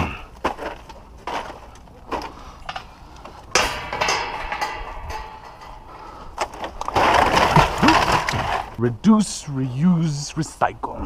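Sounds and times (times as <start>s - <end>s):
plastic bag of cans rustling: 6.4s - 8.8s.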